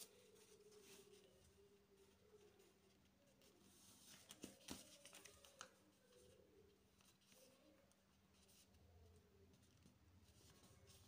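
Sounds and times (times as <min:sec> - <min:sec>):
paper rustling and creasing: 0:00.0 - 0:08.8
paper crackles and taps: 0:04.0 - 0:05.9.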